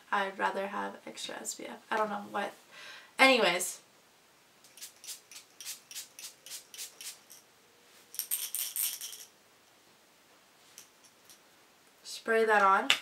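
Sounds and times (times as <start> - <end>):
fine mist sprays: 4.7 - 7.3
spray bottle rattling when shaken: 4.7 - 7.4.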